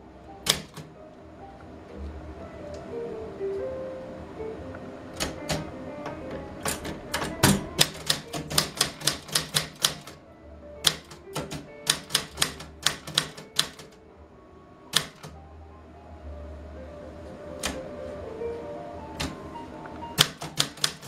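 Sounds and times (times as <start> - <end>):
typewriter keys striking: 0.4 - 0.9, 5.2 - 5.7, 6.6 - 10.2, 10.8 - 14.0, 14.9 - 15.4, 20.2 - 21.0.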